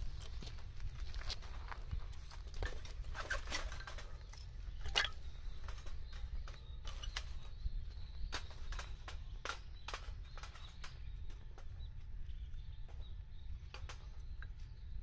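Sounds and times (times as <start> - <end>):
kindling sticks clattering: 1.4 - 7.5.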